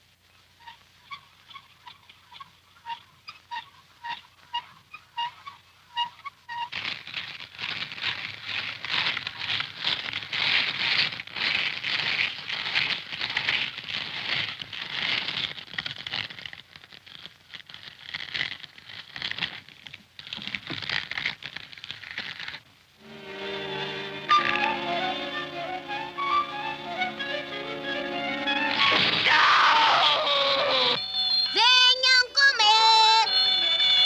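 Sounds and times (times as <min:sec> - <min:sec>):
meat grinder crunching rasp: 0:06.7 - 0:22.5.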